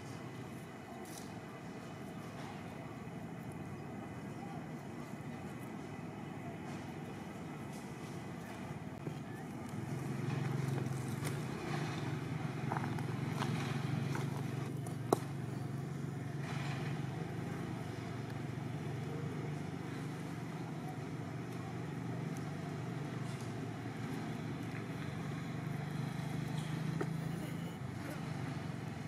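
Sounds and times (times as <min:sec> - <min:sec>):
low engine hum: 0:00.0 - 0:29.0.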